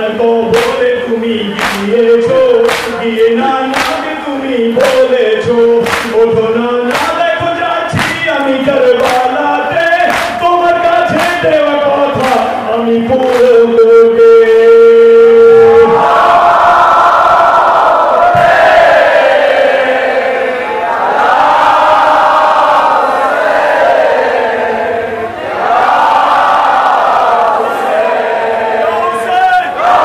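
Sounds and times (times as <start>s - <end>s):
man chanting over loudspeaker: 0.0s - 16.3s, 28.6s - 29.9s
crowd of men chanting: 15.6s - 30.0s.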